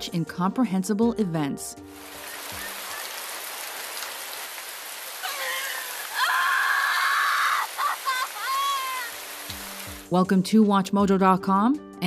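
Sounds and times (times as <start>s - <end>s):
heavy rain: 1.9s - 10.1s
woman screaming: 5.2s - 9.2s.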